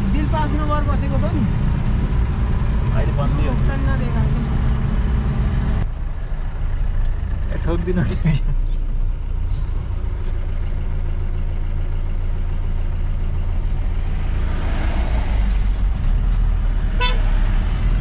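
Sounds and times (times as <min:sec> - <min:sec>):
car engine rumbling: 0:00.0 - 0:18.0
road noise: 0:00.0 - 0:18.0.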